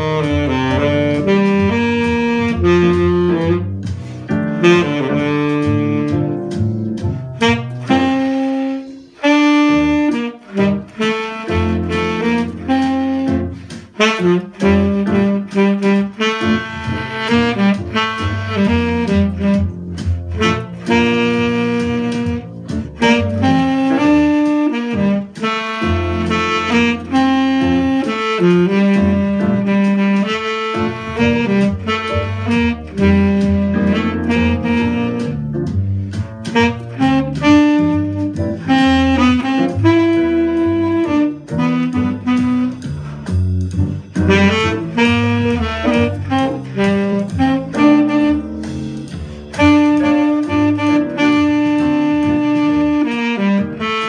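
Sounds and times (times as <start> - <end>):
tenor saxophone jazz line: 0.0 - 54.0
player breathing: 3.9 - 4.3, 13.5 - 13.9.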